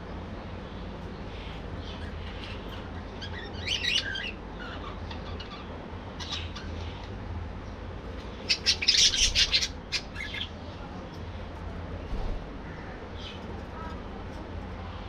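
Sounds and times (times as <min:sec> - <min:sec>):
budgerigars chirping and squawking: 0:01.3 - 0:07.1, 0:08.3 - 0:10.6.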